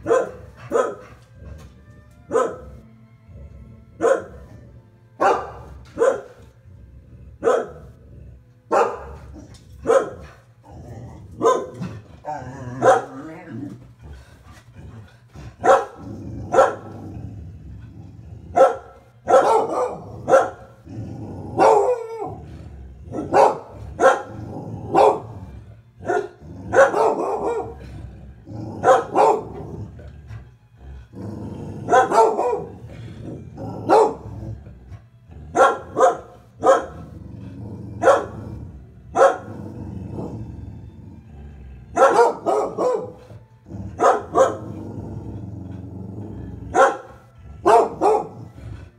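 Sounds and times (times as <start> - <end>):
dogs barking: 0.0 - 1.7, 2.3 - 2.9, 4.0 - 6.6, 7.3 - 8.0, 8.7 - 17.2, 18.5 - 30.0, 31.6 - 34.7, 35.3 - 37.2, 37.9 - 40.3, 41.8 - 45.8, 46.7 - 48.9.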